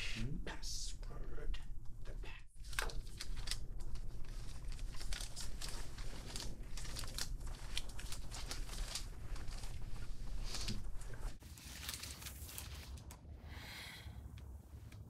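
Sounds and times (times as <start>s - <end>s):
low steady hum: 0.0s - 15.0s
paper slips rustling: 2.6s - 13.2s.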